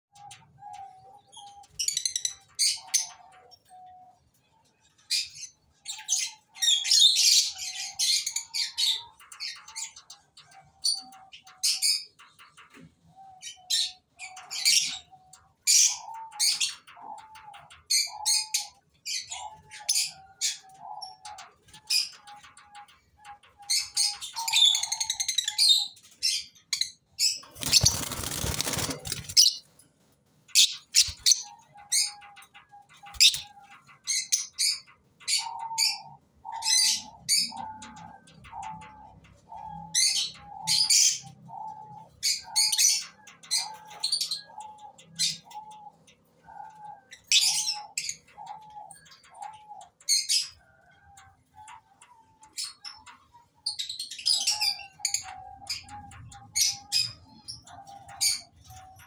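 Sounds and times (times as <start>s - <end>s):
birds chirping shrilly: 23.6s - 29.7s, 30.6s - 45.8s
wings flapping: 27.4s - 29.7s.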